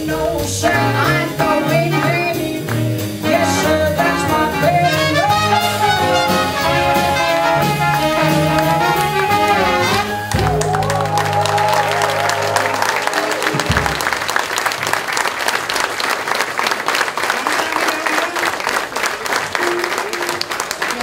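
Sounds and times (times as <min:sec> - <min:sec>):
jazz band playing: 0:00.0 - 0:14.7
horns holding long notes: 0:03.2 - 0:14.0.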